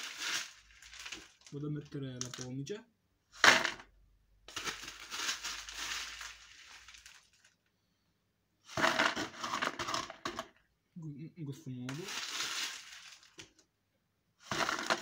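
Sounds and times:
grit rattling in colander: 0.0s - 1.6s, 4.5s - 7.6s, 11.9s - 13.4s, 14.5s - 15.0s.

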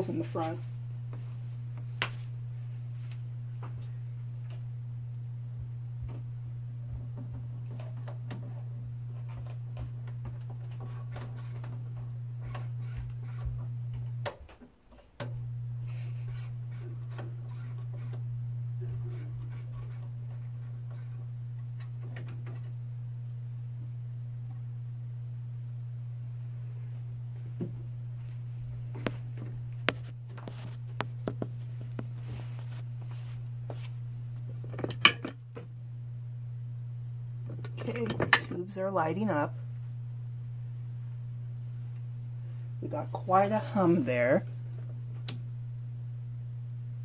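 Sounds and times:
low mains hum: 0.0s - 47.0s.

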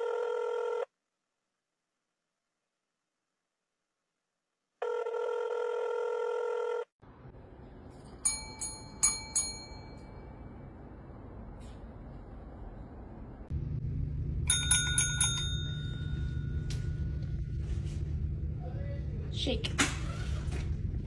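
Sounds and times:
metal service bell ringing: 8.0s - 10.5s, 14.5s - 17.1s.

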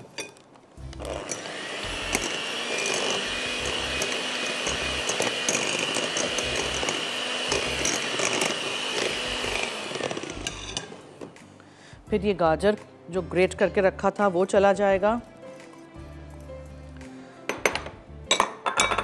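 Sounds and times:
electric hand mixer whining: 1.0s - 11.3s.

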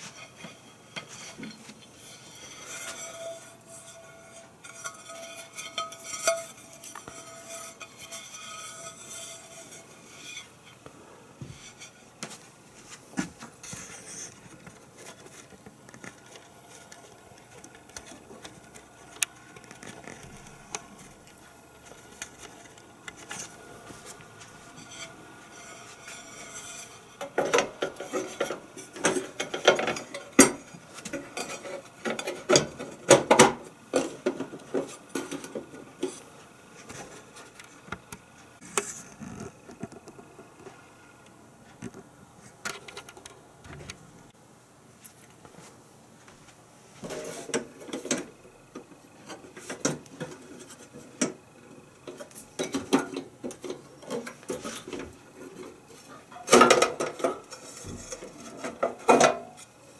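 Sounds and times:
metal grill plate clattering: 2.3s - 10.3s.

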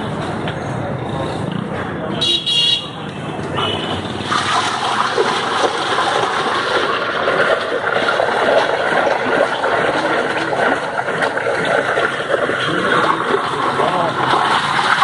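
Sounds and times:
ladle churning ice in liquid: 4.0s - 15.0s.

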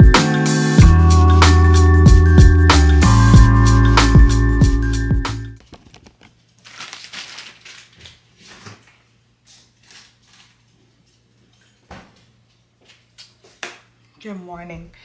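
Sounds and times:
camera handling rustle: 5.6s - 6.4s.

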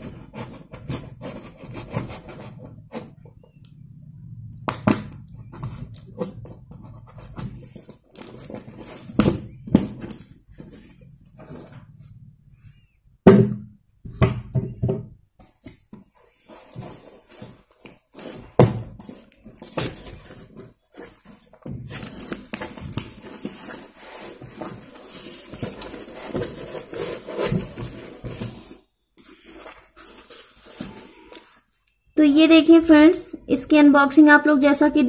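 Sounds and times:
cardboard rustling and scraping: 0.0s - 3.5s, 5.3s - 12.9s, 15.4s - 31.8s.

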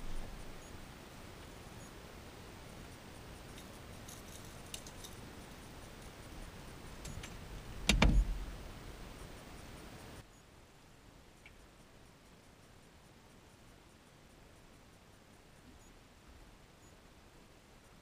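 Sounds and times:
loud clattering knock: 7.8s - 8.4s
dull thump: 7.8s - 8.5s.

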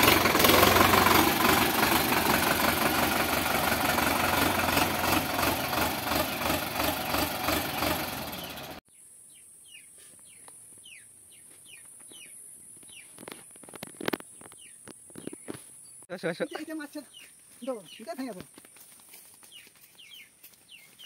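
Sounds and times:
tractor diesel engine idling: 0.0s - 8.8s
birds chirping: 6.0s - 18.8s, 19.4s - 21.0s.

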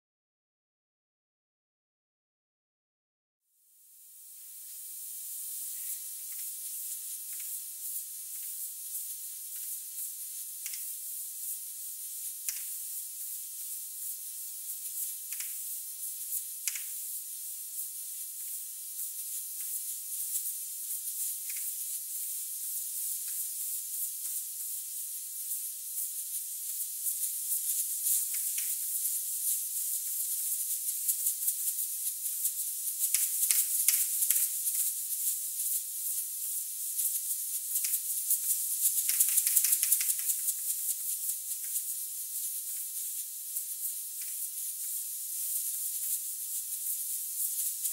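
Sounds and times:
compressed air hissing from hose: 3.8s - 47.9s
hose ticking as it flails: 18.1s - 47.9s.

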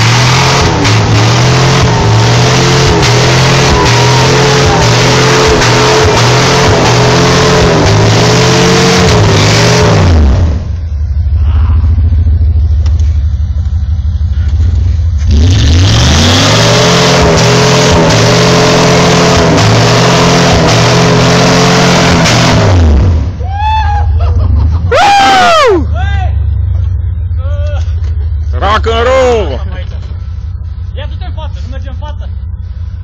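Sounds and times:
engine revving hard under load: 0.0s - 10.7s, 15.2s - 23.4s.

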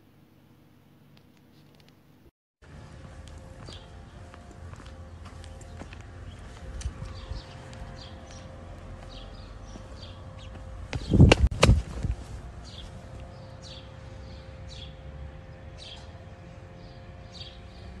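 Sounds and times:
small birds chirping: 3.2s - 18.0s
loud thumps: 10.9s - 12.2s.

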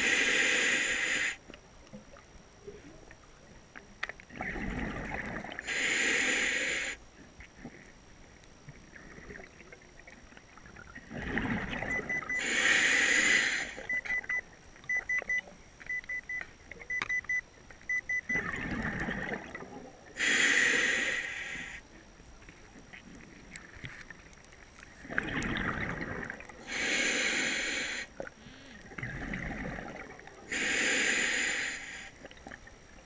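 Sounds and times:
bubbles rumbling: 4.3s - 5.6s, 8.9s - 12.4s, 18.3s - 20.2s, 25.0s - 26.6s, 28.8s - 30.5s
diver breathing through regulator: 5.6s - 7.0s, 12.3s - 14.0s, 20.2s - 21.8s, 26.6s - 28.8s, 30.5s - 32.2s
short high beeps: 11.8s - 12.5s, 13.8s - 18.5s.

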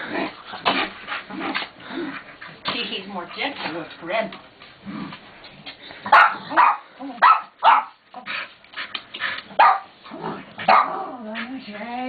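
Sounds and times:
dog barking in play: 6.1s - 8.0s, 9.6s - 9.9s, 10.6s - 11.2s.

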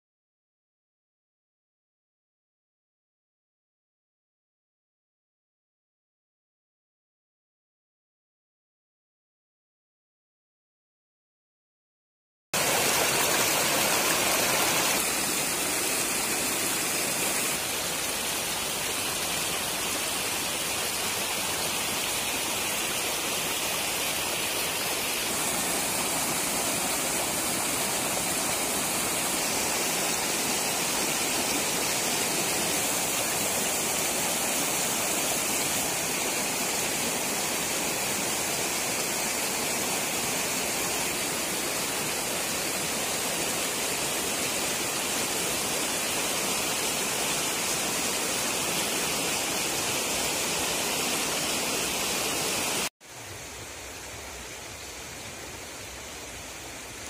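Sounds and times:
floodwater rushing: 12.6s - 57.0s.

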